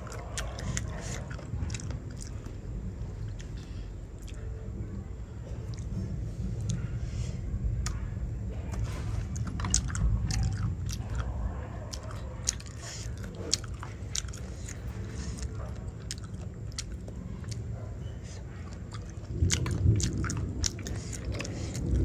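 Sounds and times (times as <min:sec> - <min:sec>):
person chewing and biting: 0:00.0 - 0:04.5, 0:08.7 - 0:22.0.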